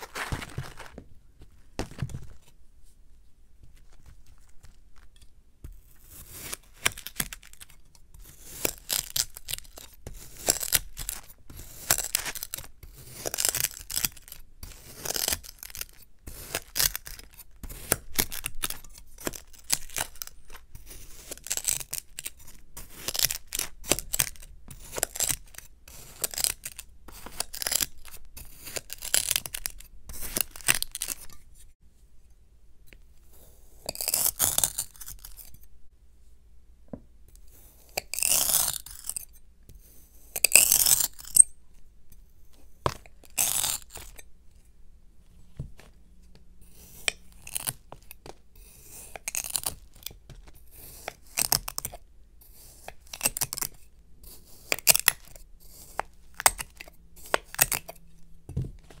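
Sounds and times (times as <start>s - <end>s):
knife slicing through kinetic sand: 5.7s - 31.3s, 37.4s - 41.4s, 46.6s - 58.0s.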